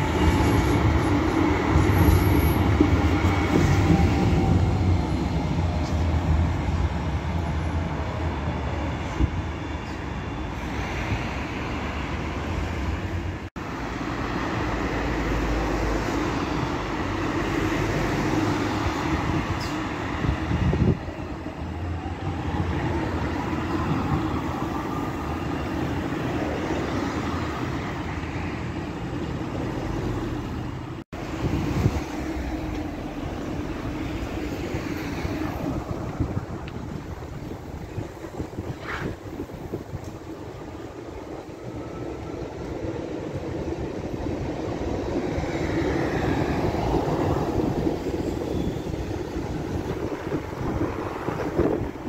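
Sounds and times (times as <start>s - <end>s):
cars idling and passing: 0.0s - 52.0s
tram running on track: 0.0s - 52.0s.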